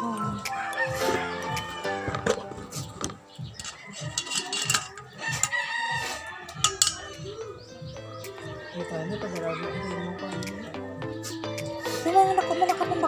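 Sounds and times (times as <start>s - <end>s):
rooster crowing: 0.4s - 2.2s, 3.6s - 7.4s, 8.4s - 10.9s.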